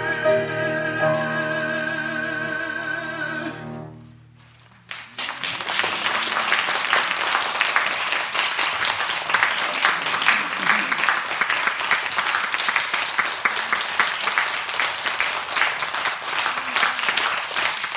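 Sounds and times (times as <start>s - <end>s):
cello and piano: 0.0s - 4.1s
audience applause: 4.9s - 17.9s.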